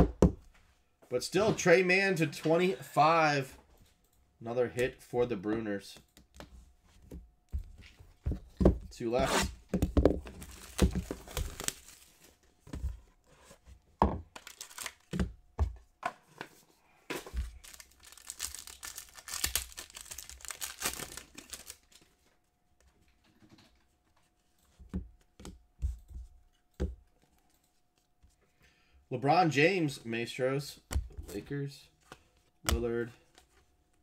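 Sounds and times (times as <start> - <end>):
wrapper tearing and crinkling: 10.4 - 12.2, 14.4 - 15.1, 17.5 - 22.0.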